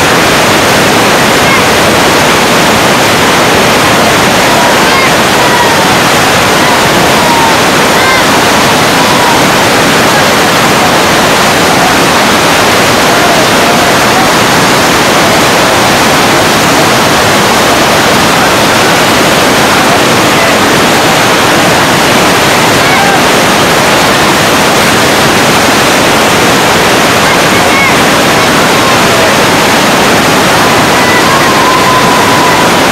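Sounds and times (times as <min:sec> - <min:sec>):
floodwater rushing: 0:00.0 - 0:32.9.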